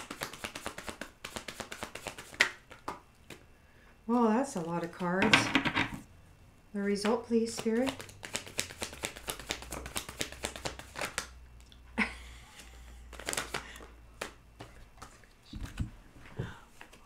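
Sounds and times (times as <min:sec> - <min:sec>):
cards being shuffled: 0:00.0 - 0:03.4, 0:07.5 - 0:11.4, 0:13.1 - 0:15.9.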